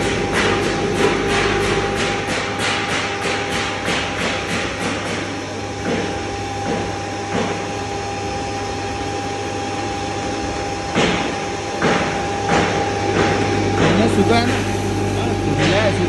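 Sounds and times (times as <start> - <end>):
sharp knocks and clatters: 0.0 - 7.7, 10.9 - 14.8.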